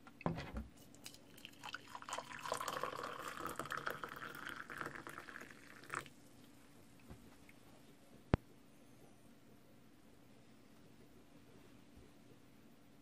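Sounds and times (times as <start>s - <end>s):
water poured into ceramic mug: 1.0s - 6.1s.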